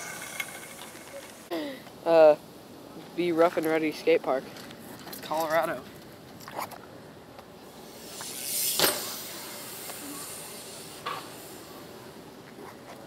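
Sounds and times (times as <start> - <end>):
wheels rolling fast past: 0.0 - 1.5.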